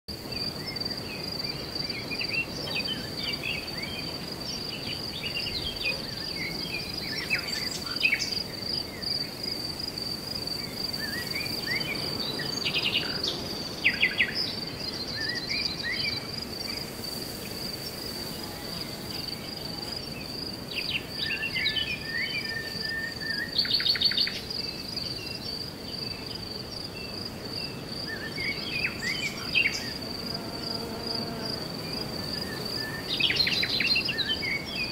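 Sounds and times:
crickets trilling: 0.1 - 34.9.

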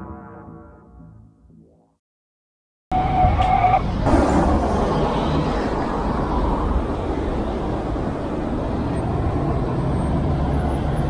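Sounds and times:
cars driving past: 3.0 - 11.0.

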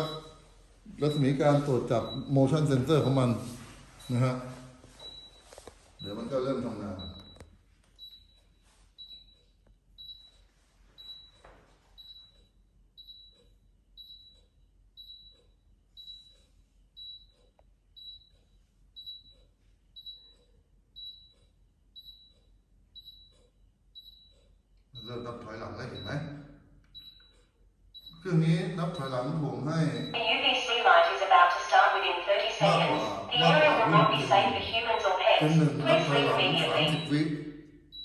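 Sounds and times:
short high beeps: 32.5 - 37.2.

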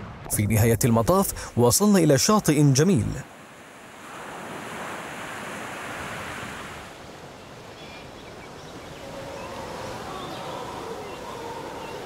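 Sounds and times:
surf washing up a beach: 3.2 - 12.0.

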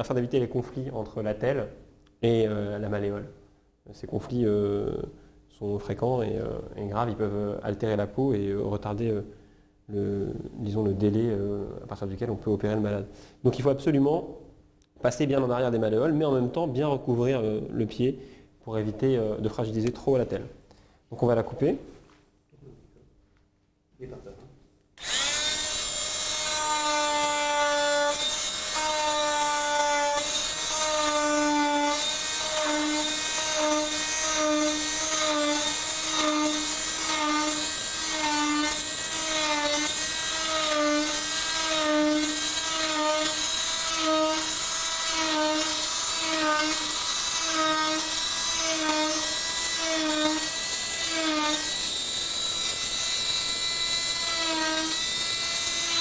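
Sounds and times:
cast saw whining: 25.0 - 56.0.

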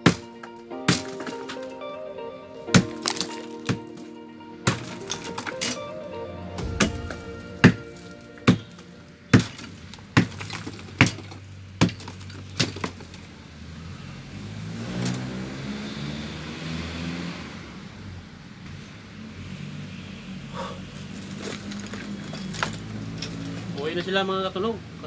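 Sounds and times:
hammer striking concrete: 0.0 - 0.3, 0.9 - 1.6, 2.7 - 3.9, 4.7 - 5.8, 6.6 - 13.0.

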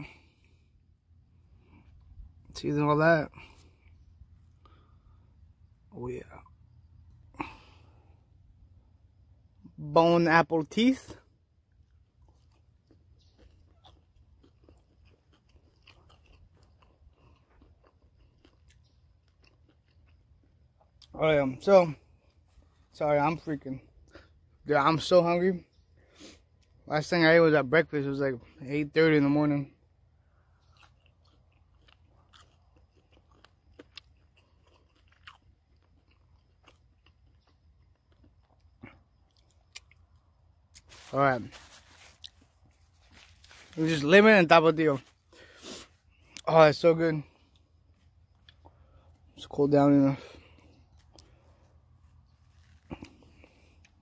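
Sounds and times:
chewing close to microphone: 11.7 - 21.2, 30.2 - 44.0, 47.2 - 49.4, 50.2 - 54.0.

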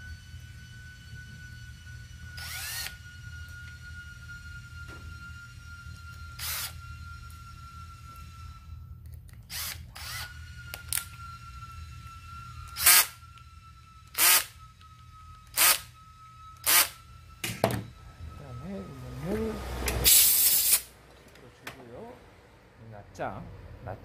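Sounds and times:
cordless driver spinning: 2.1 - 17.8.

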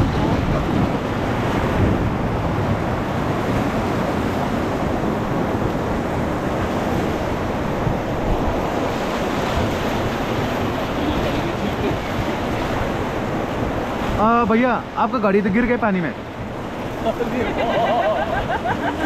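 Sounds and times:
wind on microphone: 0.0 - 15.0
rapids rushing: 0.0 - 19.0.

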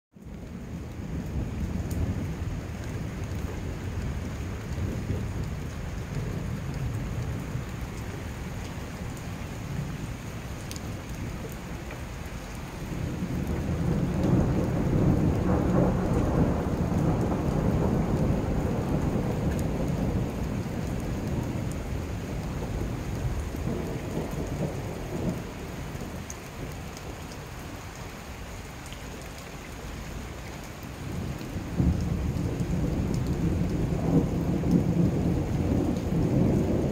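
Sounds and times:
rain falling: 0.1 - 36.9
low rumble of thunder: 0.2 - 27.8, 31.0 - 36.9.

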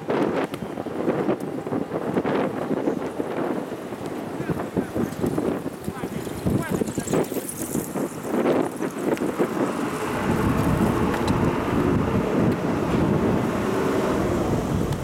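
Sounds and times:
wind buffeting microphone: 0.0 - 15.0
electric train rumbling: 6.5 - 15.0.

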